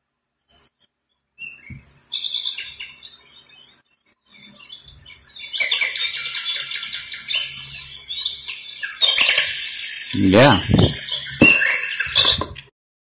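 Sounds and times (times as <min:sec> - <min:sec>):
recorded birdsong through speaker: 0:10.2 - 0:11.2.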